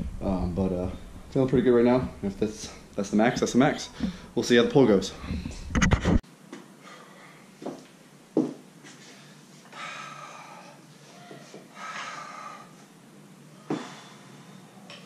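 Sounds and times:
man breathing hard: 0:03.9 - 0:04.4, 0:09.0 - 0:12.9, 0:13.7 - 0:14.8.

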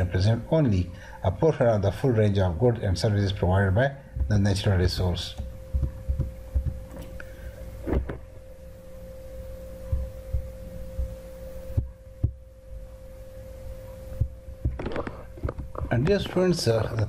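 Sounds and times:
electrical hum: 0:00.0 - 0:17.0
soft thumps and clicks: 0:05.3 - 0:07.2.

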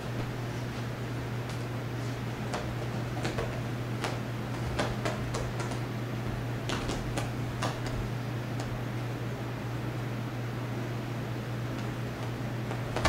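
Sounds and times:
steady low hum: 0:00.0 - 0:13.0
cat claws tapping and scrabbling: 0:02.5 - 0:08.7.

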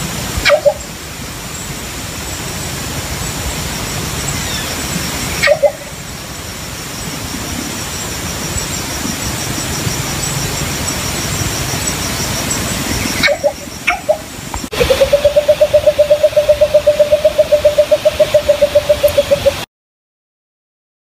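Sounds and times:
steady hiss: 0:00.0 - 0:19.6
bird low hooting: 0:05.4 - 0:05.9, 0:12.8 - 0:19.6
fast high-pitched pulsing: 0:07.4 - 0:19.7.

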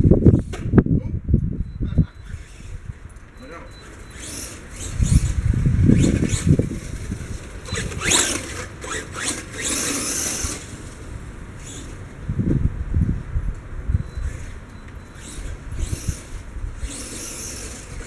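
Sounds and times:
toy truck motor whining: 0:02.2 - 0:12.0, 0:14.1 - 0:18.0.

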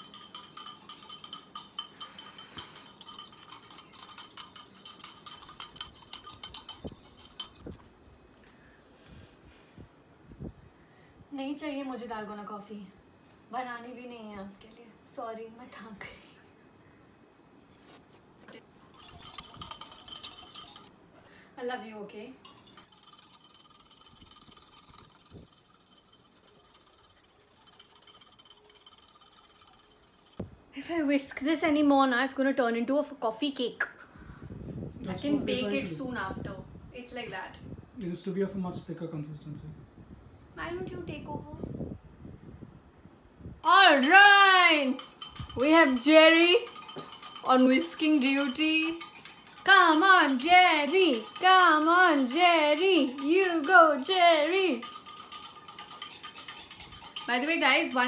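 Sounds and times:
whisk clinking against ceramic bowl: 0:00.0 - 0:07.8, 0:18.9 - 0:20.9, 0:22.4 - 0:30.4, 0:43.6 - 0:58.0.

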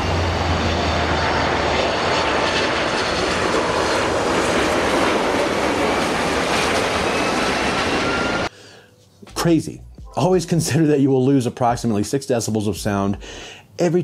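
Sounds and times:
jet airliner engine rushing: 0:00.0 - 0:08.5.

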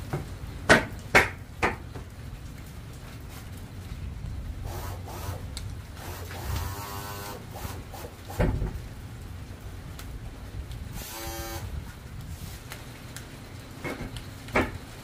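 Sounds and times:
steady low rumble: 0:02.2 - 0:06.7
small electric motor whirring: 0:04.7 - 0:05.4, 0:06.0 - 0:08.4, 0:11.0 - 0:11.7.

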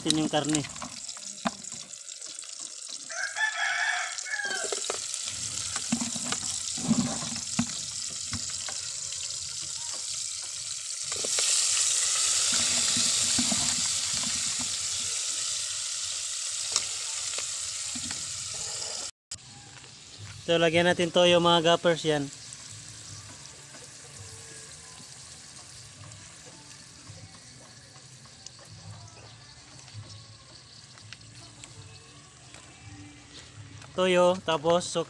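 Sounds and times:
chicken sizzling in hot oil: 0:00.0 - 0:28.9
rooster crowing: 0:03.0 - 0:04.9.

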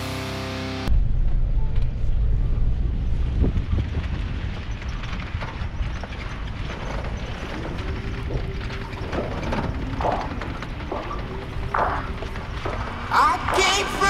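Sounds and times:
vehicle engine and tyres rumbling: 0:00.8 - 0:14.0
wind on microphone: 0:01.9 - 0:14.0.

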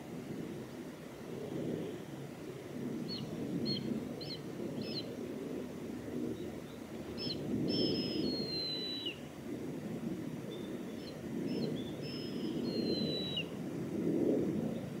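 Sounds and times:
eagle calling high whistles: 0:07.2 - 0:09.2, 0:11.0 - 0:13.5.

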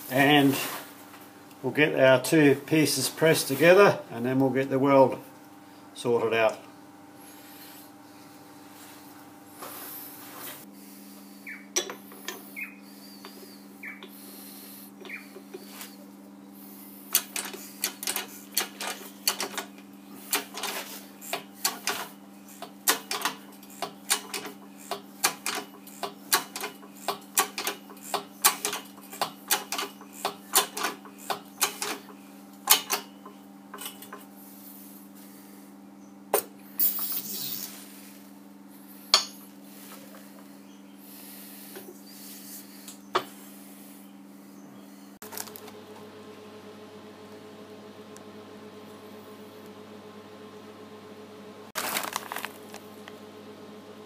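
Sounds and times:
steady low hum: 0:00.0 - 0:54.0
hydraulic press pump clicking: 0:20.3 - 0:33.1.

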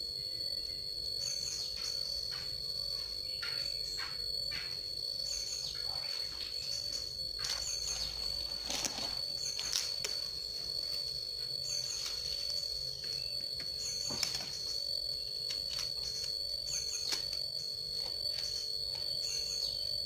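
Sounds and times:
high-pitched insect trill: 0:00.0 - 0:20.0
bird chirps: 0:03.0 - 0:10.0, 0:11.6 - 0:17.2, 0:18.3 - 0:19.9.

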